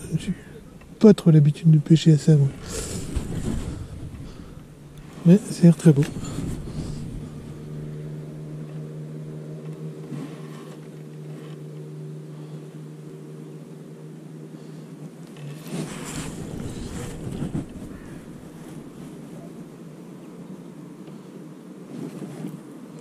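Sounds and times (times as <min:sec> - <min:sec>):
steady engine hum: 0:00.0 - 0:23.0
wind noise on microphone: 0:02.5 - 0:08.2, 0:15.6 - 0:19.6.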